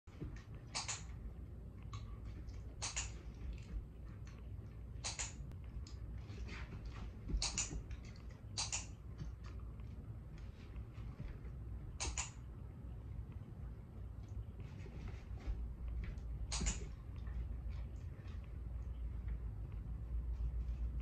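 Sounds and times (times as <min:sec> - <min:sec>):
low steady hum: 0:00.1 - 0:21.0
training clicker double clicks: 0:00.7 - 0:01.1, 0:02.8 - 0:03.1, 0:05.0 - 0:05.4, 0:07.4 - 0:07.8, 0:08.6 - 0:08.9, 0:12.0 - 0:12.4, 0:16.5 - 0:16.8.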